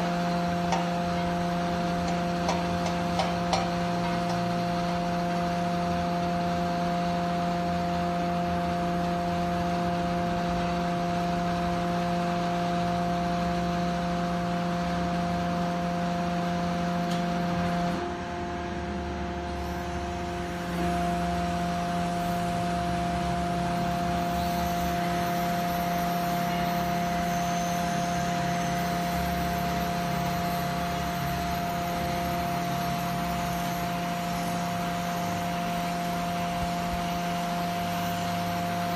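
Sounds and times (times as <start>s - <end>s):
hydraulic pump humming with whine: 0.0s - 38.9s.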